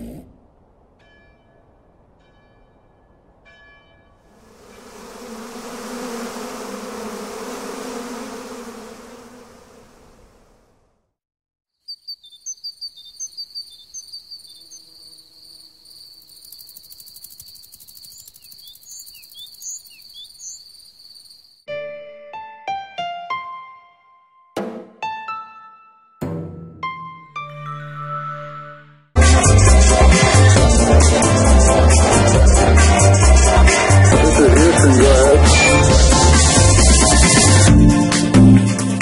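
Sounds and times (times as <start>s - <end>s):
crickets trilling: 11.8s - 21.7s
short scattered chirps: 16.7s - 21.3s.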